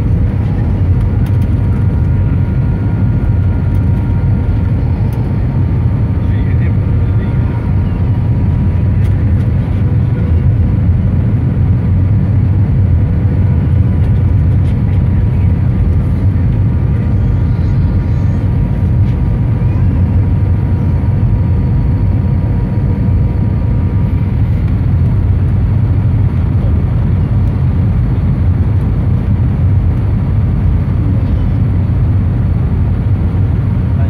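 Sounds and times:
aircraft cabin engine rumble: 0.0 - 34.0
faint steady whines: 0.0 - 34.0.

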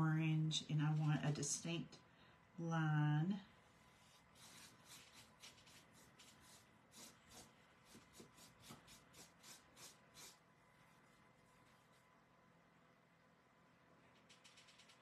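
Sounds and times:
paintbrush scratching on canvas: 4.0 - 10.4.

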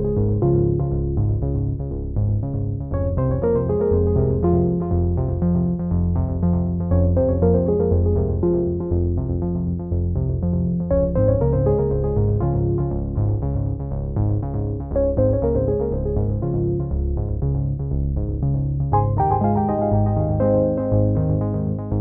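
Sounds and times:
bass line: 0.0 - 22.0
repeating keyboard notes: 3.0 - 5.8, 6.5 - 9.8, 18.9 - 22.0.

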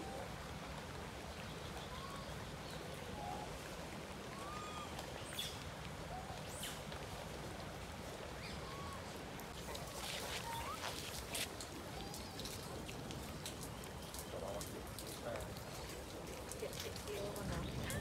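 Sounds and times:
low background noise: 0.0 - 18.0.

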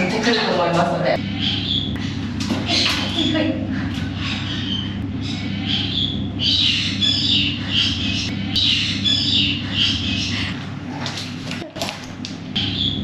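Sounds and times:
steady low hum: 0.0 - 13.0
birds making harsh high calls: 1.2 - 10.8, 12.6 - 13.0.

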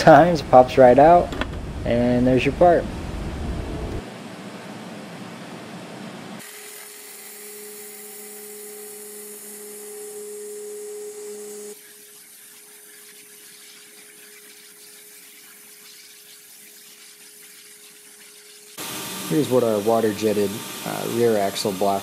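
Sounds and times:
pump tone: 6.5 - 19.6
waterjet hissing: 8.0 - 22.0.

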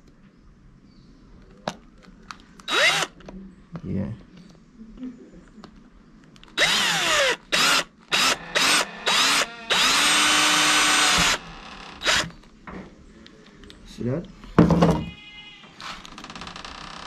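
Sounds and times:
cordless drill boring plastic: 2.7 - 3.1, 6.6 - 12.3.

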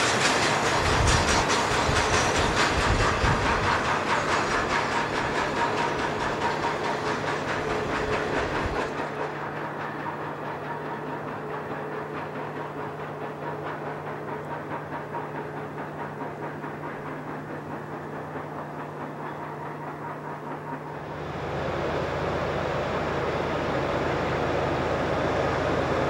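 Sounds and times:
steel wheels clattering on rails: 0.0 - 26.0.

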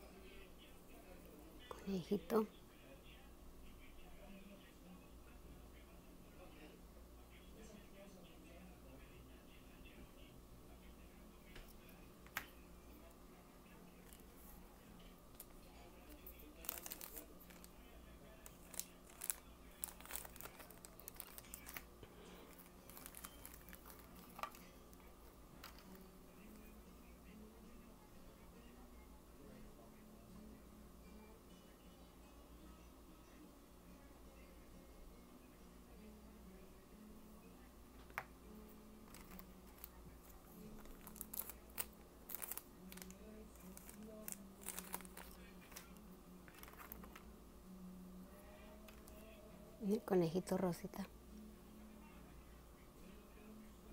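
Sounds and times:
faint steady hum: 0.0 - 53.9
plastic crinkling: 16.6 - 17.7, 18.4 - 24.6, 39.1 - 40.0, 40.7 - 47.2.

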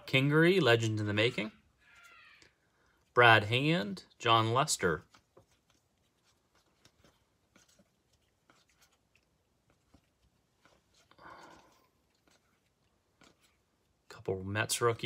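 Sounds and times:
cards being flipped by hand: 4.8 - 14.1.

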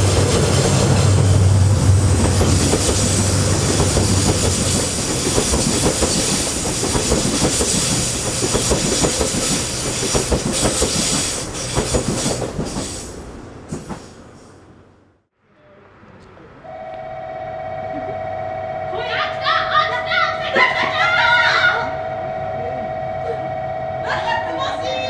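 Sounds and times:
train wheels clattering: 0.0 - 14.5.

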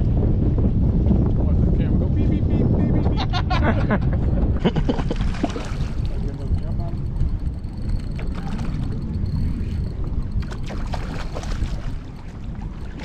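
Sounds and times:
wind rumble on microphone: 0.0 - 13.0
water lapping at boat hull: 4.9 - 13.0.

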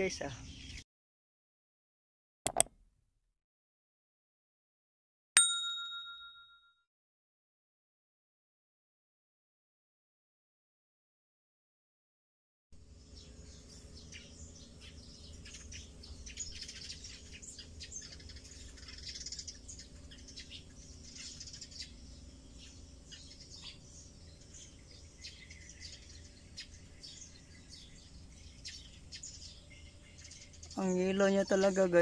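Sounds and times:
birds chirping: 12.9 - 32.0.

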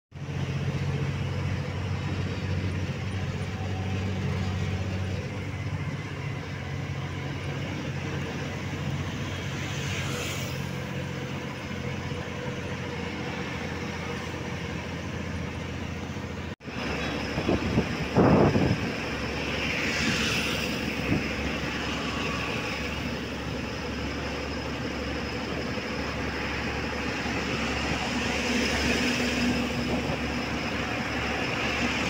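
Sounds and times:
diesel engine running: 0.1 - 32.0.

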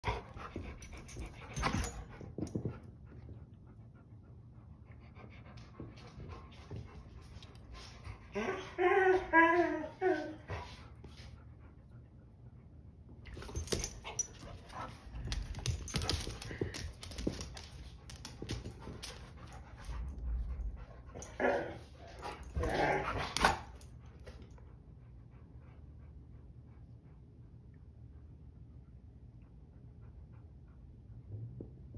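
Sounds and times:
dog whining: 8.4 - 10.5
dog panting: 13.5 - 21.4.

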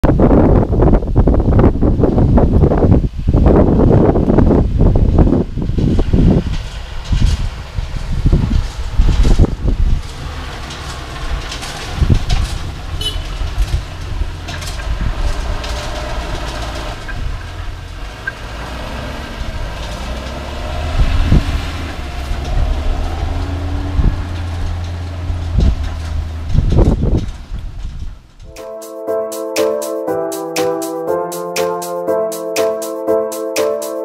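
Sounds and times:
tractor diesel engine running: 5.6 - 27.8.

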